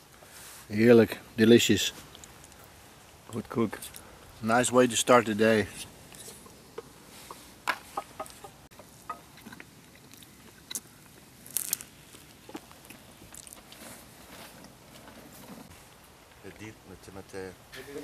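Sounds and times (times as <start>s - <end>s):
clinks and scrapes of eating: 5.7s - 15.7s.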